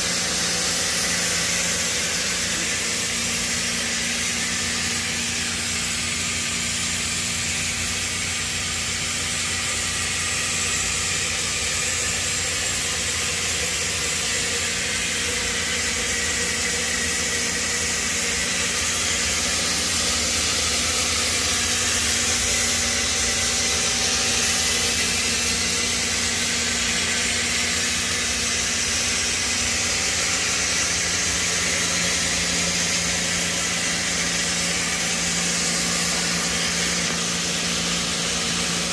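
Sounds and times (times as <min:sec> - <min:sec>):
machinery hum and hiss: 0:00.0 - 0:38.9.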